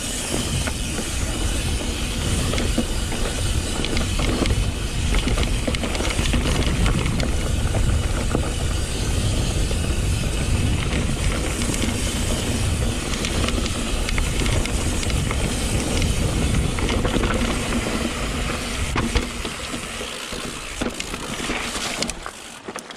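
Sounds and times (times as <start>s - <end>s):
wind rumbling on microphone: 0.0s - 22.3s
bike clicks and rattles: 0.0s - 22.9s
bike tyre noise: 0.0s - 22.9s.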